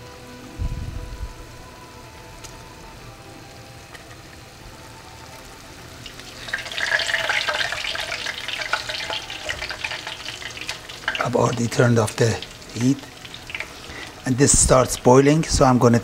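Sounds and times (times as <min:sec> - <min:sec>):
sauce bubbling and sizzling in pan: 0:04.2 - 0:16.0.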